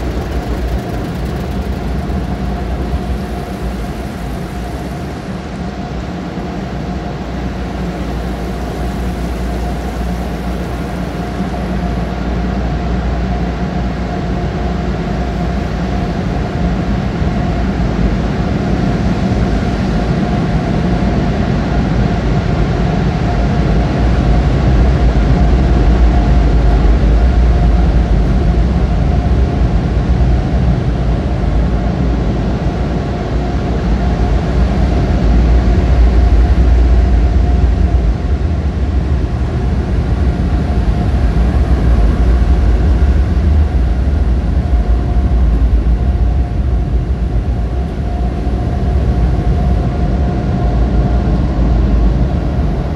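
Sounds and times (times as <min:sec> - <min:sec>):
air-dryer blowers rushing: 0:00.0 - 0:06.0.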